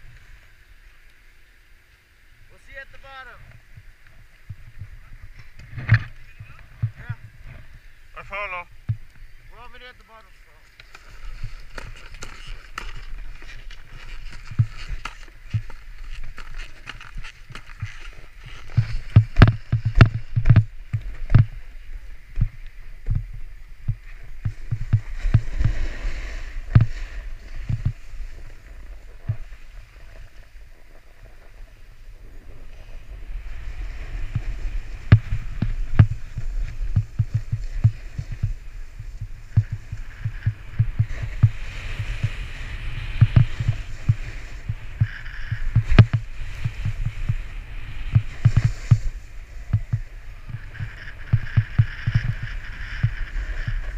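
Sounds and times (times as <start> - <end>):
snowboard scraping over snow: 2.5 - 53.9
wind buffeting microphone: 3.6 - 9.5, 11.1 - 53.9
snowboard chattering knocks: 10.9 - 31.7, 33.2 - 53.9.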